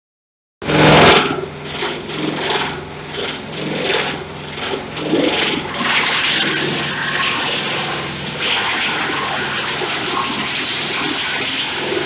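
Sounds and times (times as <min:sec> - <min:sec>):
chopper machine motor drone: 0:00.6 - 0:12.0
blades shredding plant stalks: 0:05.0 - 0:12.0.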